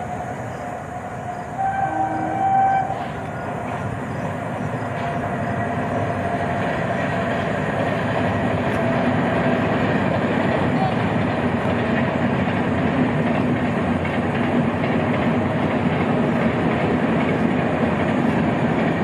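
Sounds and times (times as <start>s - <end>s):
train rumbling on track: 0.0s - 19.0s
locomotive horn blast: 1.5s - 3.3s.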